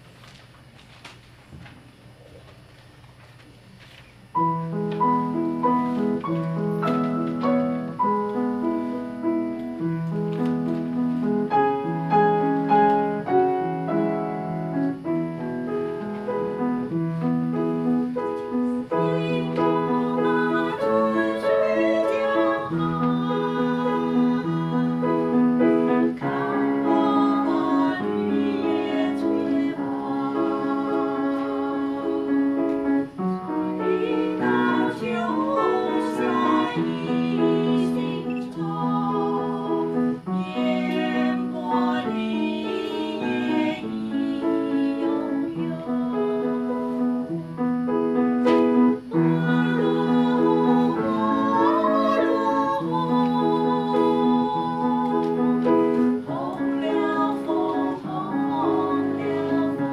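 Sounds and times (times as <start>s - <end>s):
slow piano accompaniment: 4.3s - 59.9s
women singing a duet: 18.5s - 47.4s, 48.6s - 59.9s.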